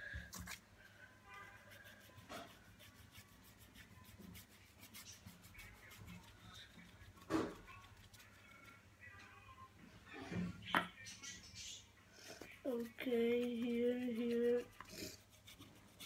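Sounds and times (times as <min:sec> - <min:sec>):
paintbrush brushing on cardboard: 0:01.4 - 0:08.4, 0:12.4 - 0:16.0.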